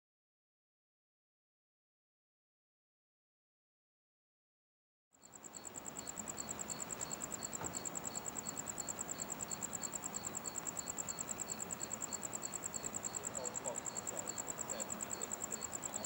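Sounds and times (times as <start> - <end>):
crickets trilling: 5.2 - 16.0
faint background noise: 5.2 - 16.0.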